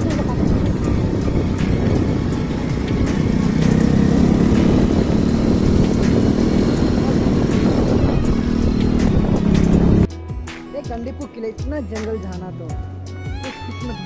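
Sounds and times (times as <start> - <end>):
road noise: 0.0 - 10.1
vehicle engine cruising: 0.0 - 10.1.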